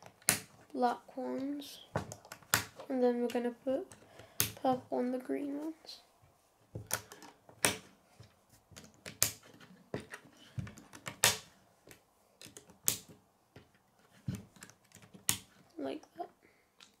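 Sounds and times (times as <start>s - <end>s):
plastic pieces clicking and snapping: 6.8s - 7.9s, 8.7s - 15.6s, 16.8s - 17.0s.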